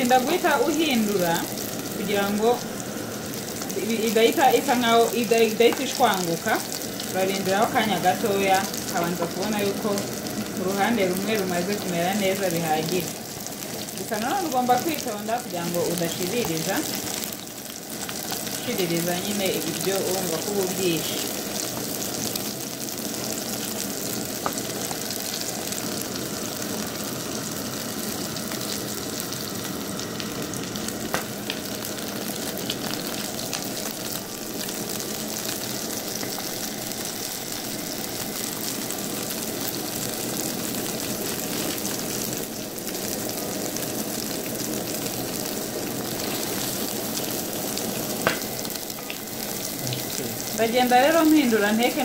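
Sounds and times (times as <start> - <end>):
burger patties sizzling in oil: 0.0 - 52.0
wooden spatula knocking pan: 48.2 - 48.5.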